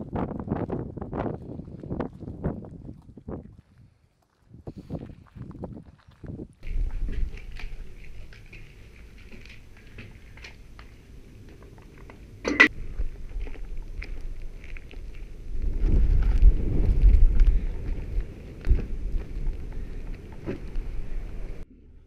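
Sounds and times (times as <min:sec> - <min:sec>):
low rumble of microphone handling: 0:11.8 - 0:21.6.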